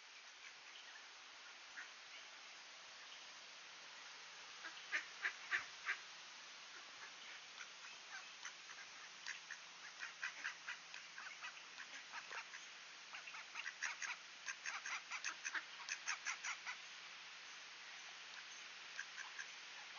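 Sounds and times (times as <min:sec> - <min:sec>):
ducks quacking: 0:04.6 - 0:06.0, 0:06.7 - 0:16.8.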